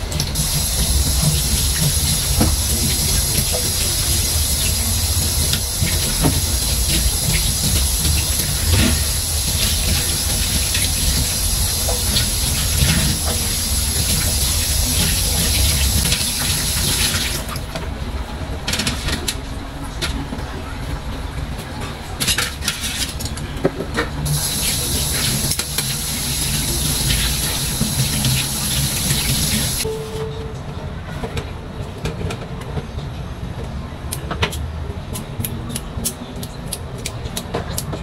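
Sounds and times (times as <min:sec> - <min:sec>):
tap water running into sink: 0:00.2 - 0:17.6, 0:24.2 - 0:29.8.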